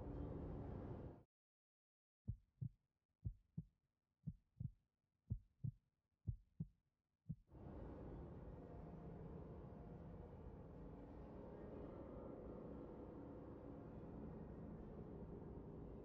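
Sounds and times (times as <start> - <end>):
heartbeat thumps: 2.3 - 7.5.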